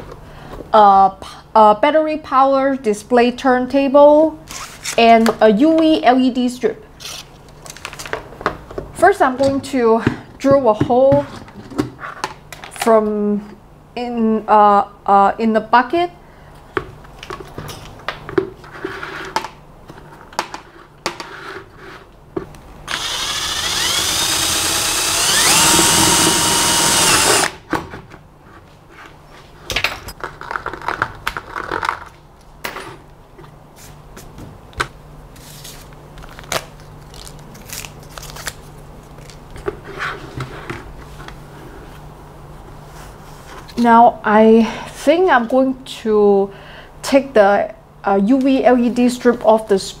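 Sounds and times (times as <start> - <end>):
power drill running: 22.9 - 27.6.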